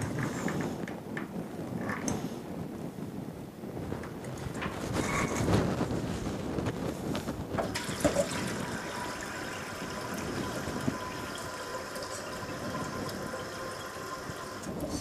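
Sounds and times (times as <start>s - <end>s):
tap running water into pot: 7.6s - 15.0s.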